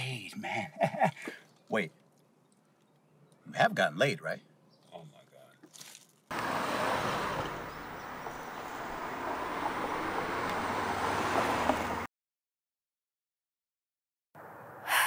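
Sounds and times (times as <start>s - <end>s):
car rolling to curb: 6.3s - 12.1s
street and traffic noise: 6.3s - 12.1s.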